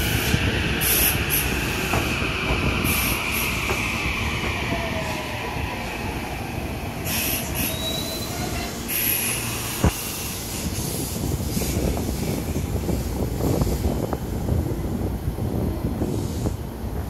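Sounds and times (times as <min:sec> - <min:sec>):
train wheels rumbling on rail: 0:00.0 - 0:17.0
high-pitched wheel squeals: 0:07.0 - 0:09.8.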